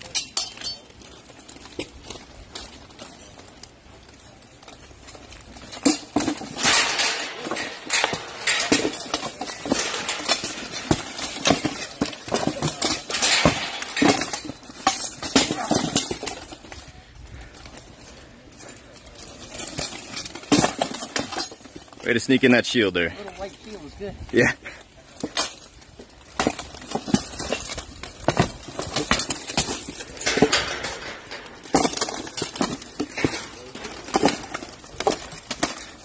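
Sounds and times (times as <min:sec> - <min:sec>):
plate armour clanking: 0:05.2 - 0:16.8, 0:25.1 - 0:36.0.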